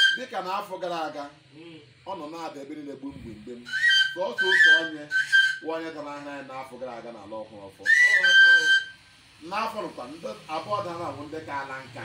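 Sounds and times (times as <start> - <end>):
high whistled notes: 0.0 - 0.6, 3.4 - 6.3, 7.8 - 9.2
people talking: 0.0 - 12.0.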